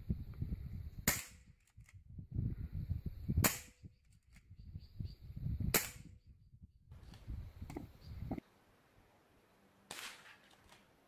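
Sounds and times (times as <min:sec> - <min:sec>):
air rifle shots: 0:01.0 - 0:01.5.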